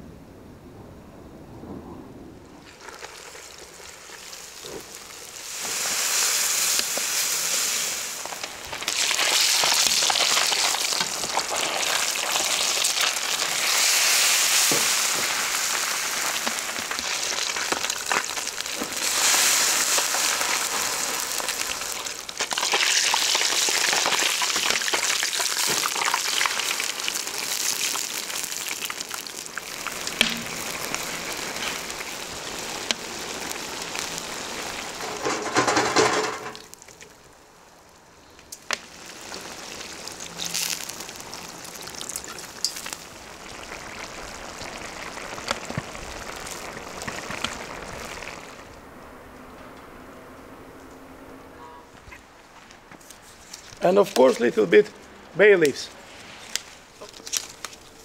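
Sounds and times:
fish sizzling in hot oil: 2.6 - 37.0, 38.6 - 48.7.

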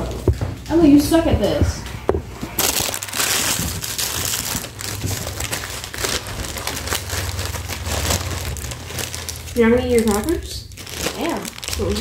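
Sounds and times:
plastic bag crinkling: 2.4 - 12.0.

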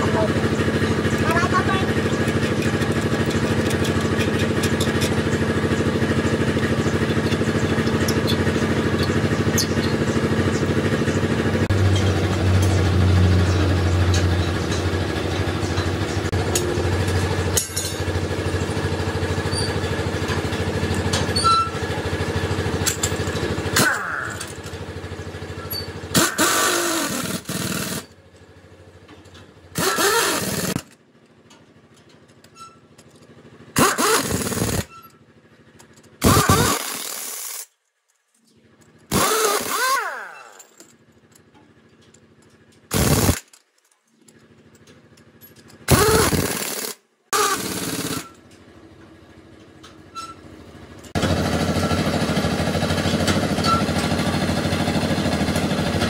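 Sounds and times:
engine running: 0.0 - 37.7, 38.3 - 56.0
pneumatic impact wrench bursts: 25.6 - 28.2, 29.7 - 31.0, 33.7 - 35.1, 36.2 - 37.7, 39.1 - 40.8, 42.9 - 43.6, 45.8 - 48.5.

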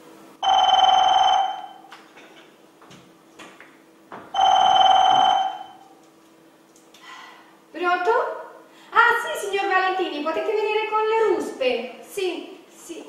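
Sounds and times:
mobile phone ringing: 0.4 - 1.9, 4.4 - 5.9.

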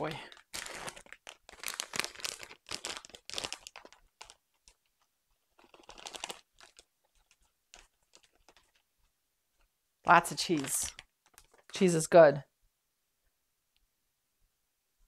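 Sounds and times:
plastic bag crinkling: 0.0 - 8.9, 9.6 - 12.1.

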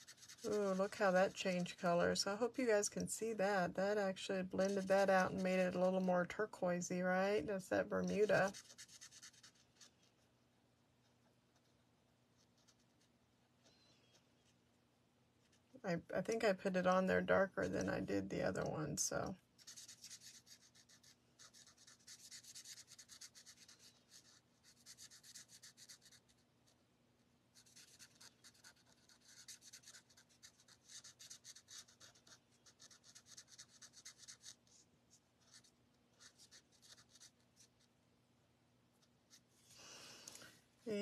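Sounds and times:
marker scratching on paper: 0.0 - 2.8, 4.4 - 6.2, 8.0 - 10.1, 12.4 - 13.2, 19.6 - 26.4, 27.6 - 34.8, 35.4 - 37.8.

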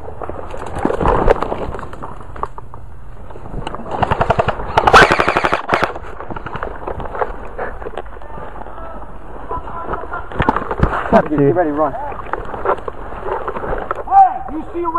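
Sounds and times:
airsoft rifle automatic bursts: 3.9 - 6.0.

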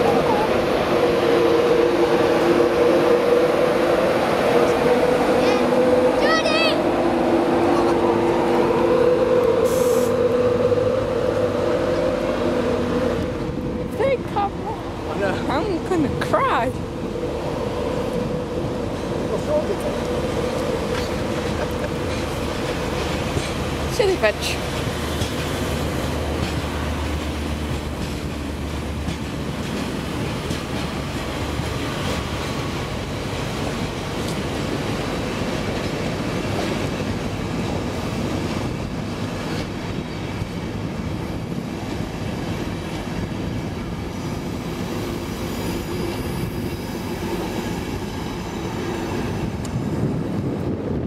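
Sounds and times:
train coaches rolling past: 0.0 - 51.0
wheels clacking over rail joints: 17.6 - 50.2.

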